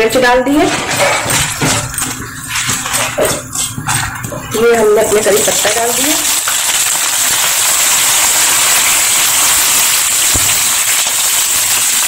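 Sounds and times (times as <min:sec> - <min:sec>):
spices sizzling in hot oil: 0:04.4 - 0:12.0.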